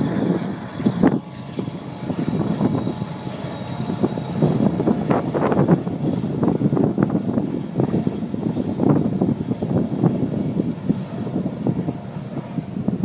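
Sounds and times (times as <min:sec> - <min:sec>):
distant freight train rumble: 0:00.0 - 0:13.0
wind buffeting microphone: 0:00.0 - 0:13.0.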